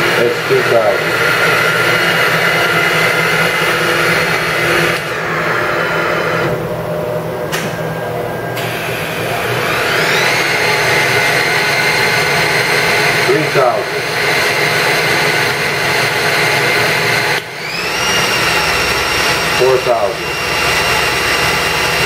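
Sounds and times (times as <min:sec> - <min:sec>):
machine whine: 0:00.0 - 0:22.0.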